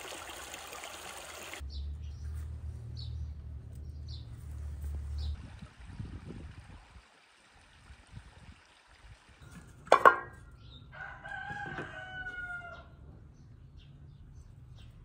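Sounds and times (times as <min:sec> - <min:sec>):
rooster crowing: 0:10.9 - 0:12.9.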